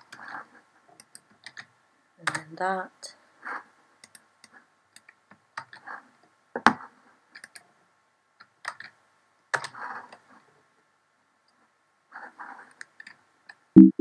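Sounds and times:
keyboard typing clicks: 13.8 - 14.0.

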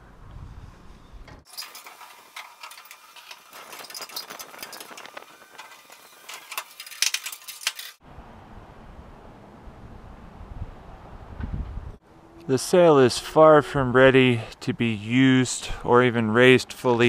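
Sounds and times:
pole clattering along mast: 1.4 - 8.0.

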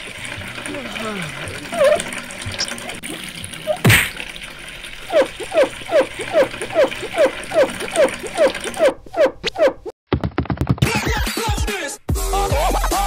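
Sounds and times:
faint running water hiss: 0.0 - 8.5
cartoon thump: 3.8 - 4.2
short falling squeaks: 5.1 - 9.9.

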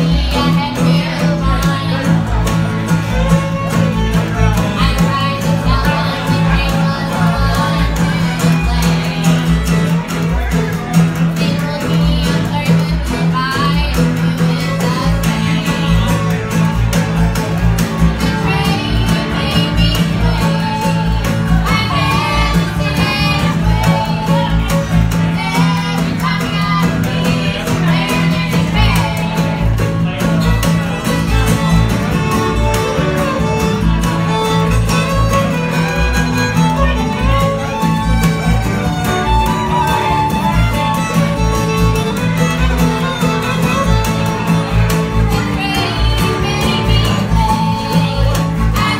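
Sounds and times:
bluegrass string band playing: 0.0 - 48.9
fiddle lead: 0.0 - 48.9
upright bass line: 0.0 - 48.9.

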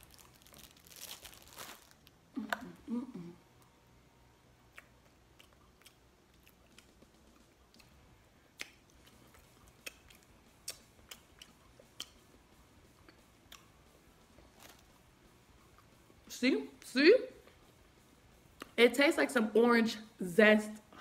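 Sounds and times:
person chewing food: 4.6 - 16.0
mouth clicks and smacks: 4.7 - 13.8, 18.5 - 18.8.

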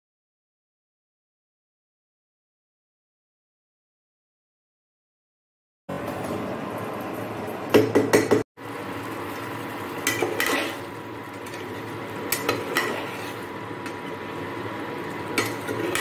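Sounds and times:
metal spoon clinking against pot: 12.3 - 14.0, 15.3 - 16.0.

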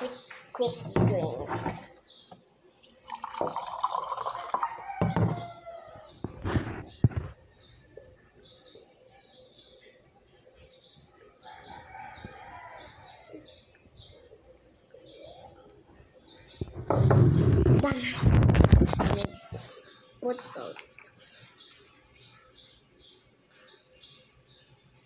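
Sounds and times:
small birds chirping: 0.0 - 25.0
water poured into mug: 2.8 - 4.8
mug and pitcher knocking on table: 5.0 - 5.5.

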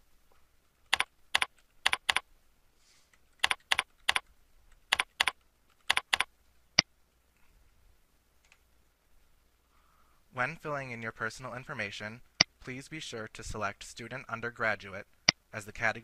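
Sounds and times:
keyboard keystrokes: 0.9 - 2.2, 3.4 - 4.2, 4.9 - 6.3.

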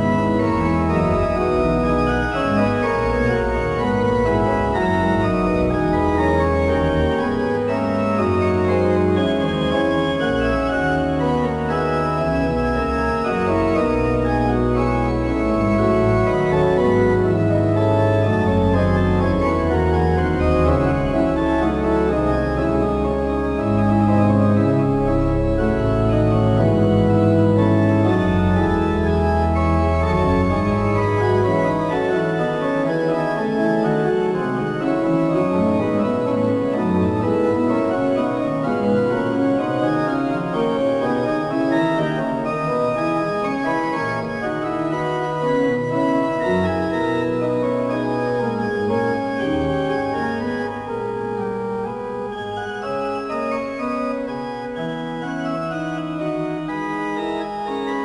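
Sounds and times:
deep organ bass line: 0.0 - 42.2
organ chords: 0.0 - 58.0.

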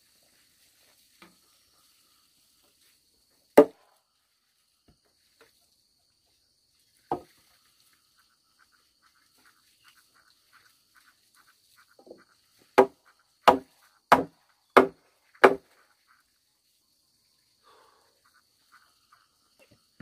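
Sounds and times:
wood knocks: 7.1 - 7.3, 12.8 - 15.6.

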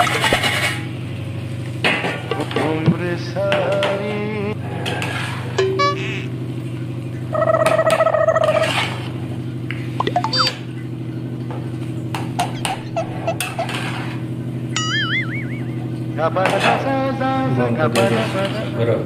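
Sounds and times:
steady tone: 5.6 - 6.3, 14.7 - 16.1
low hum: 5.6 - 8.4, 9.8 - 16.3.

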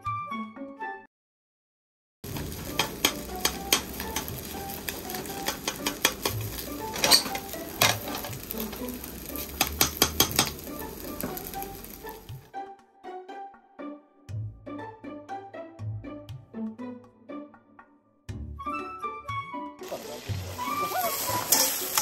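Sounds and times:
rice sizzling in a wok: 2.2 - 12.5, 19.8 - 22.0
metal ladle scraping and clanking: 2.4 - 8.9, 20.6 - 22.0.

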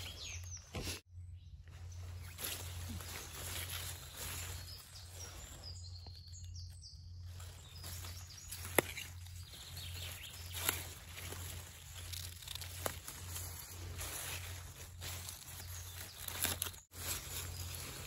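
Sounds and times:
leaves rustling: 1.7 - 6.0, 7.2 - 18.0.

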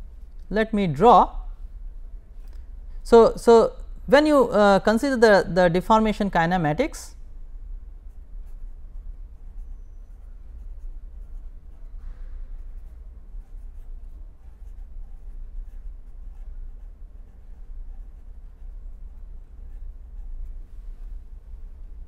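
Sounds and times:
pen scratching on paper: 8.1 - 12.0, 12.6 - 21.2.

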